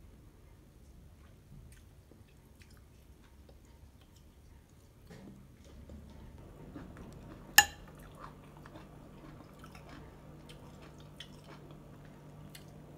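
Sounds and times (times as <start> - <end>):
low steady hum: 0.0 - 12.9
soft chewing: 0.3 - 12.9
fork clinking on plate: 7.6 - 7.9.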